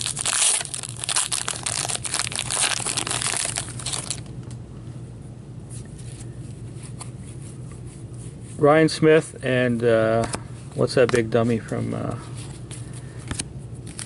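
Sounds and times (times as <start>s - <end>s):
cards rustling: 0.0s - 4.3s
foil wrapper crinkling: 0.0s - 4.3s.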